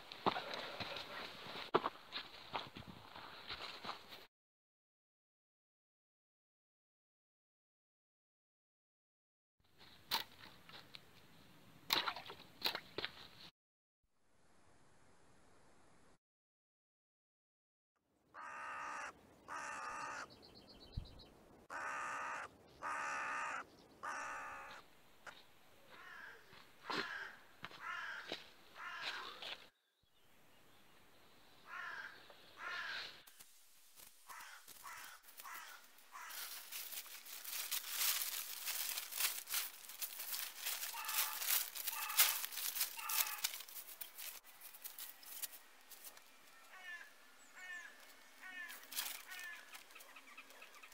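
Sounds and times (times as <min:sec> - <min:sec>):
crow cawing: 0:18.3 - 0:20.3, 0:21.7 - 0:24.8, 0:25.9 - 0:29.4, 0:31.7 - 0:33.1, 0:34.3 - 0:38.5, 0:39.1 - 0:43.7, 0:46.6 - 0:49.8
bird calling: 0:18.4 - 0:24.8, 0:34.3 - 0:44.3, 0:46.2 - 0:50.9
plastic tarp crinkling: 0:33.4 - 0:46.1.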